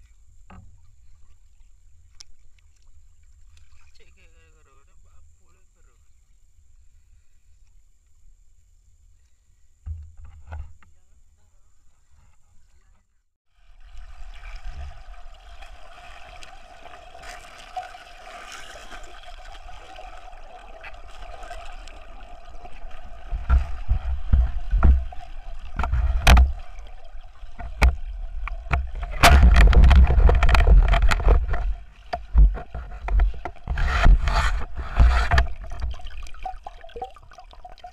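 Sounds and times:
muffled underwater hum: 13.7 - 36.0
dense rushing water noise: 13.7 - 37.5
underwater knocks and clicks: 13.8 - 37.9.

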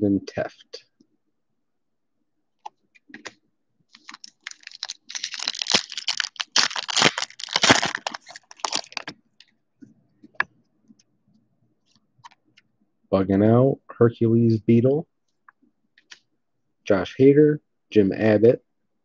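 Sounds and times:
foil wrapper crinkling: 3.9 - 9.2.

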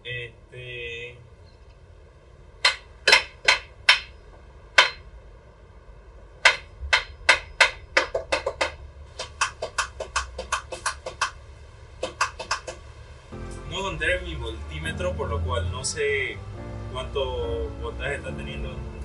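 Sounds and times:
hand tool striking metal parts: 2.6 - 4.2, 4.8 - 5.0, 6.4 - 11.3.

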